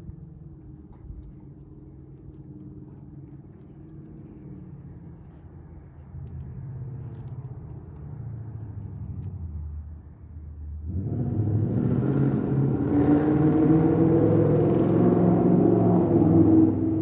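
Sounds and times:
engine rumbling: 0.0 - 17.0.

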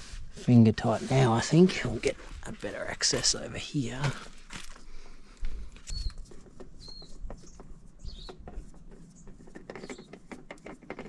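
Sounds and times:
oil filter clicking and scraping: 5.7 - 11.0.

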